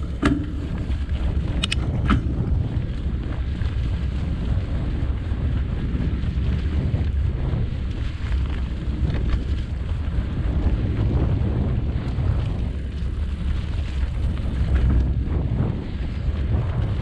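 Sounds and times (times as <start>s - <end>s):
bike clicks and rattles: 0.0s - 17.0s
bike tyres on dirt trail: 0.0s - 17.0s
wind buffeting microphone: 0.0s - 17.0s.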